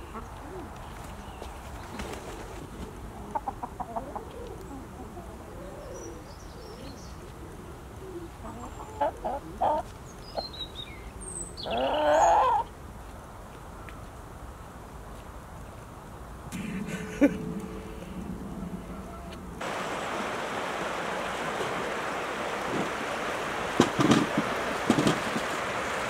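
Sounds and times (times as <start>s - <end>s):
chickens clucking: 0.0s - 10.7s, 11.6s - 12.7s
chicken drawn-out call: 8.1s - 9.9s, 11.6s - 12.7s, 16.6s - 19.7s.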